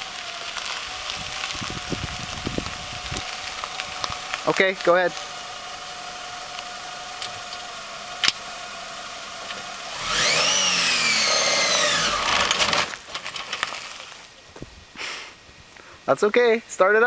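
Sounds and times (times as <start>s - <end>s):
car engine idling and revving: 0.0s - 13.0s.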